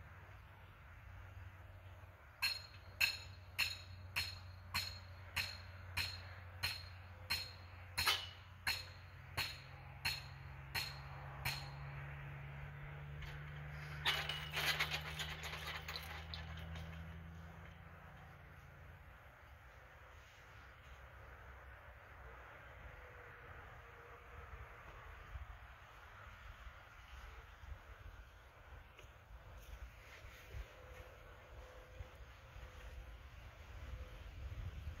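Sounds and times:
ringing blows on metal: 0:02.4 - 0:12.0.

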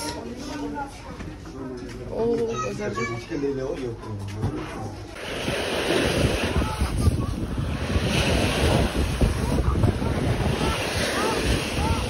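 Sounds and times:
steady rushing noise: 0:05.2 - 0:12.0
wind buffeting microphone: 0:05.2 - 0:12.0.

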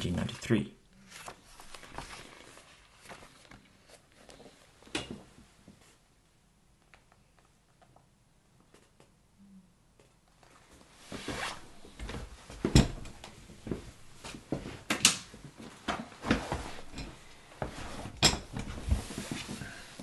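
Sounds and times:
rustling: 0:01.0 - 0:04.7, 0:10.4 - 0:20.0.

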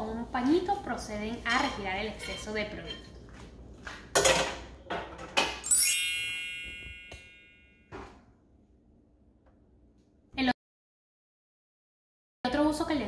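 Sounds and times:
sparkle chime sound effect: 0:05.6 - 0:07.9.

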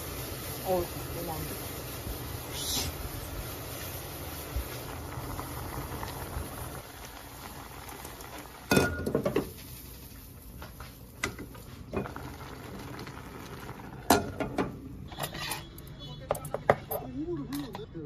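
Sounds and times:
gas stove hissing: 0:00.0 - 0:15.4
cookware clanking: 0:08.7 - 0:09.5, 0:14.1 - 0:17.9.

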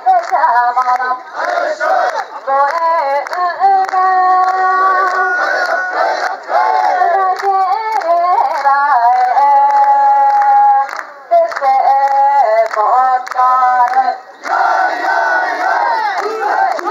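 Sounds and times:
crowd shouting: 0:01.2 - 0:02.4, 0:04.7 - 0:07.2, 0:14.0 - 0:16.9
person singing slow song: 0:02.4 - 0:05.9, 0:06.8 - 0:14.4.

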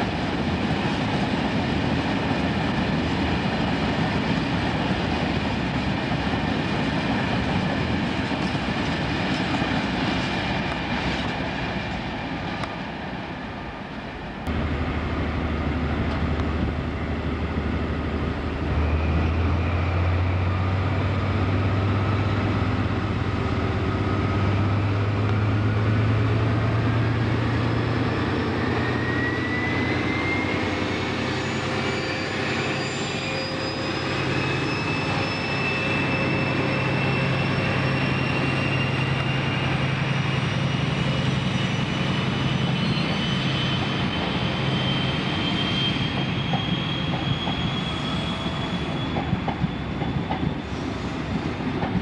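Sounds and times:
freight train rumbling past: 0:00.0 - 0:52.0
diesel engine low drone: 0:14.1 - 0:31.6.

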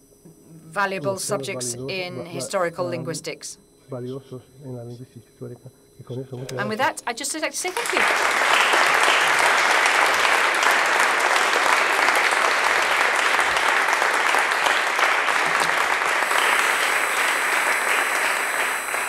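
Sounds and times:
audience applauding: 0:07.7 - 0:19.0.

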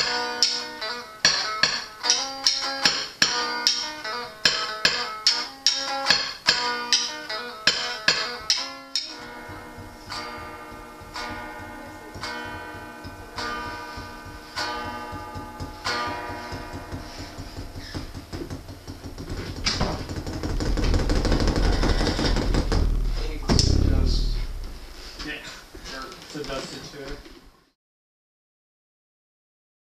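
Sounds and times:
electric guitar chords: 0:00.0 - 0:19.2, 0:22.6 - 0:25.2
drumsticks tapping: 0:00.0 - 0:22.8.

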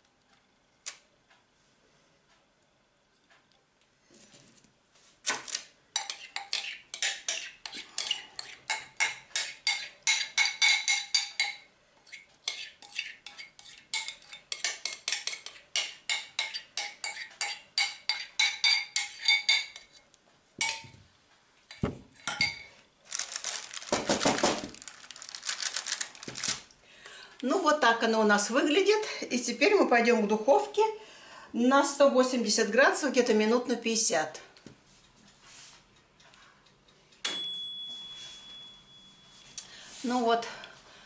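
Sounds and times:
spoon scraping glass jug: 0:06.0 - 0:08.7, 0:12.0 - 0:14.7
baking paper rustling in tin: 0:23.1 - 0:26.7.

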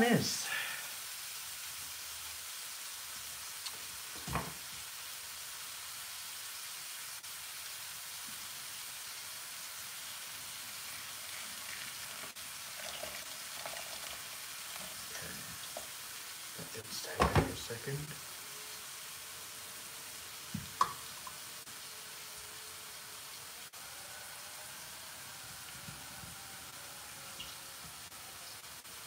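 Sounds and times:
stir fry sizzling in frying pan: 0:00.0 - 0:23.8
knock on pan: 0:20.5 - 0:21.0.

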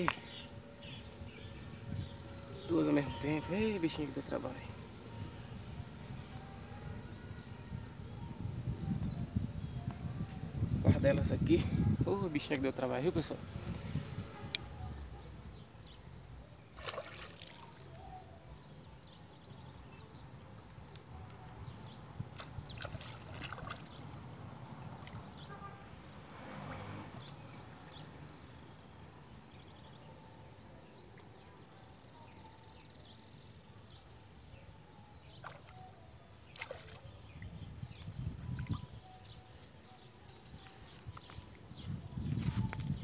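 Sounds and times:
wind on microphone: 0:00.8 - 0:03.6, 0:04.7 - 0:15.6, 0:21.1 - 0:25.5, 0:37.0 - 0:39.5, 0:40.3 - 0:43.0
soft splash: 0:16.8 - 0:18.0, 0:22.4 - 0:24.0, 0:35.4 - 0:35.8, 0:36.5 - 0:37.1
fishing pole clicks and rustles: 0:40.6 - 0:41.6, 0:42.2 - 0:43.0.

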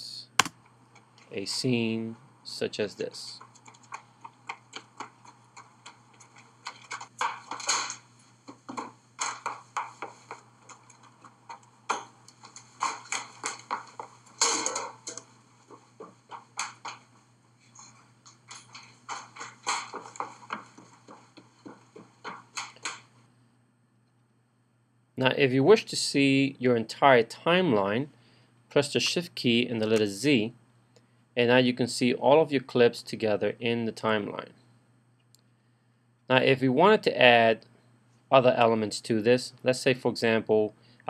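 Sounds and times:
faint low hum: 0:00.0 - 0:41.0
knocks clicks and clatter: 0:03.4 - 0:17.2, 0:17.8 - 0:23.1.

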